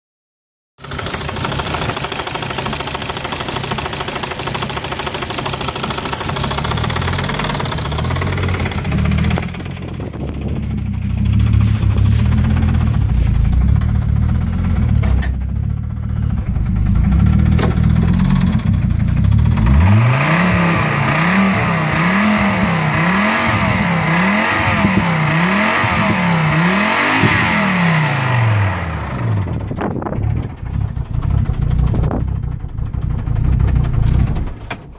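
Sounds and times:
car engine idling and revving: 0:00.8 - 0:34.9.

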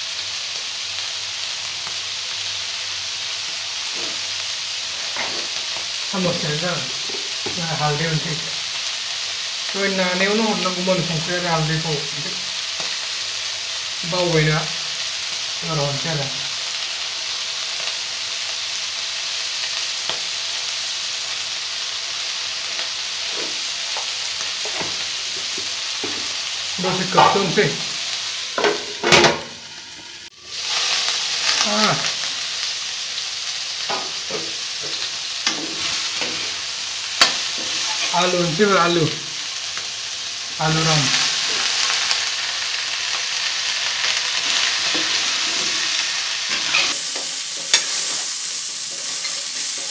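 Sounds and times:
chicken frying in hot oil: 0:00.0 - 0:49.9
spatula scraping a pan: 0:44.4 - 0:49.9.

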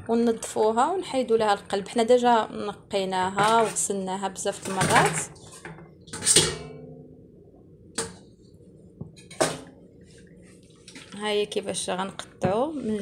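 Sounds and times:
kitchen utensil clattering: 0:04.6 - 0:06.7.

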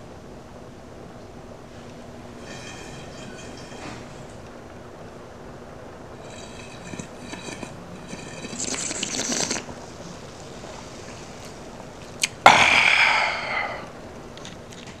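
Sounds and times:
wet slurping and chewing: 0:06.2 - 0:12.4.

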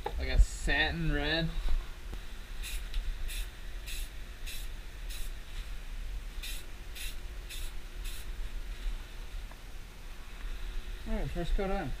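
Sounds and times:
spray can hissing: 0:02.6 - 0:05.4, 0:06.4 - 0:08.3.

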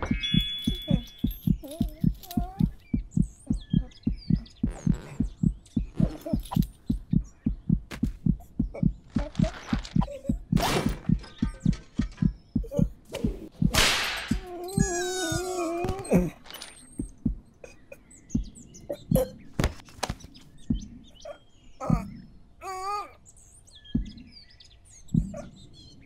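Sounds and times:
low thumping pulse: 0:00.0 - 0:15.5, 0:17.0 - 0:17.5, 0:20.6 - 0:21.1, 0:23.8 - 0:24.3, 0:25.1 - 0:25.6.

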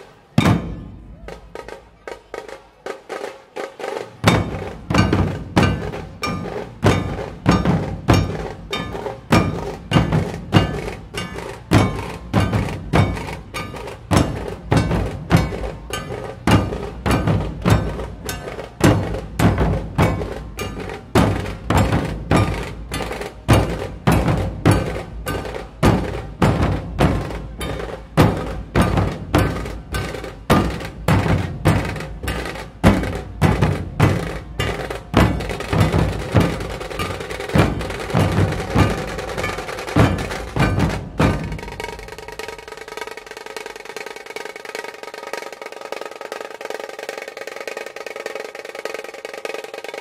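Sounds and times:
dhol drums beaten with sticks: 0:00.3 - 0:50.0.

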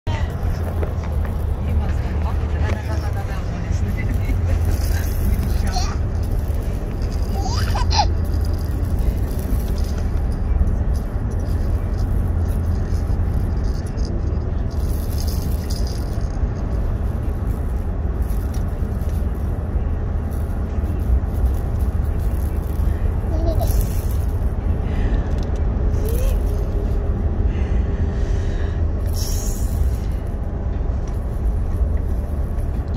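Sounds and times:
vehicle cabin road rumble: 0:00.0 - 0:32.9
baby squealing: 0:07.2 - 0:08.2, 0:23.3 - 0:23.9.

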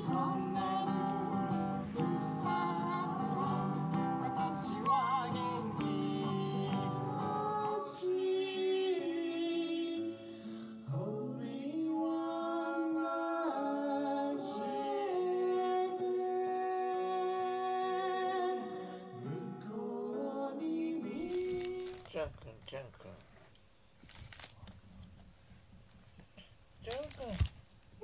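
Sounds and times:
acoustic guitar picking: 0:00.0 - 0:07.5
person singing a slow song: 0:00.0 - 0:22.2.

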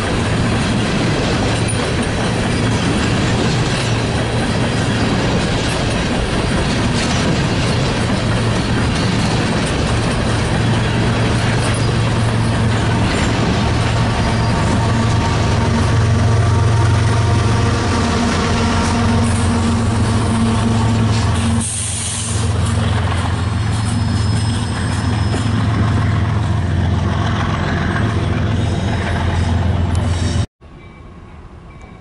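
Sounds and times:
diesel locomotive engine drone: 0:00.0 - 0:32.0
air hiss: 0:21.5 - 0:22.5.

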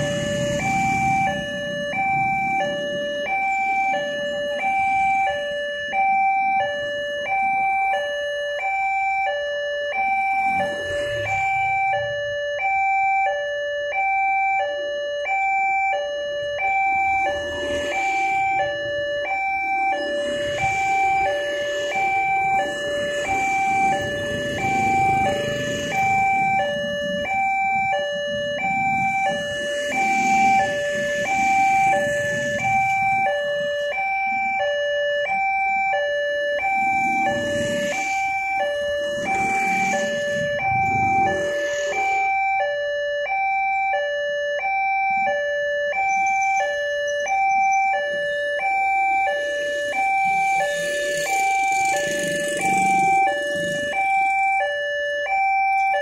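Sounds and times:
motorcycle engines passing: 0:00.0 - 0:05.4, 0:10.0 - 0:12.5, 0:16.5 - 0:42.4, 0:48.3 - 0:54.8
level-crossing alarm beeping: 0:00.0 - 0:56.0.

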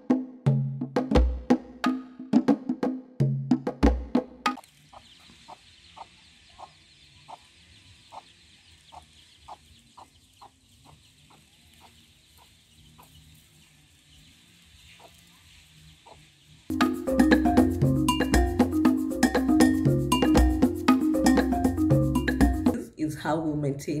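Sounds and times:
chickens clucking: 0:04.6 - 0:17.7.

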